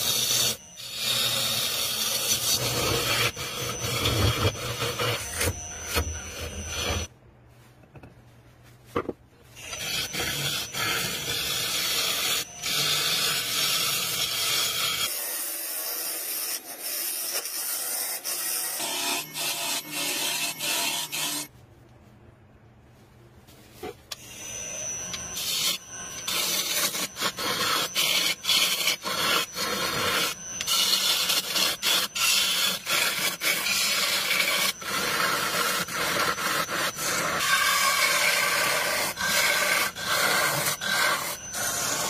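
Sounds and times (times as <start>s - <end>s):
lathe tool scraping hiss: 24.2s - 42.0s.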